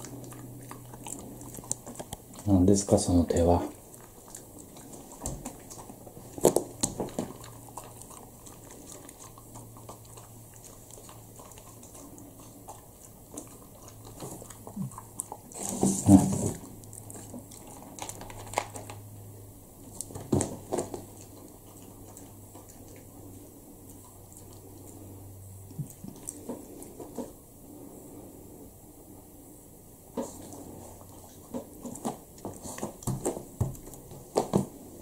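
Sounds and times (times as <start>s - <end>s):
puppy crunching dry kibble: 0.0s - 28.3s, 30.1s - 35.0s.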